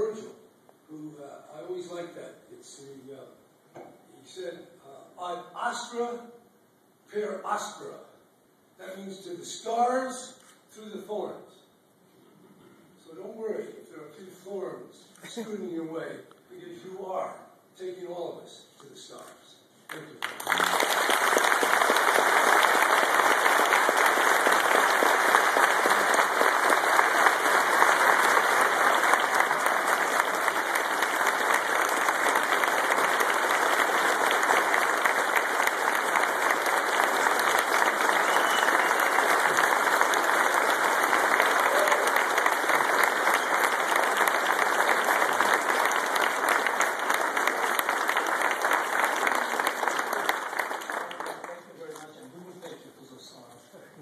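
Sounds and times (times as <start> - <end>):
audience applause: 19.9 - 51.8.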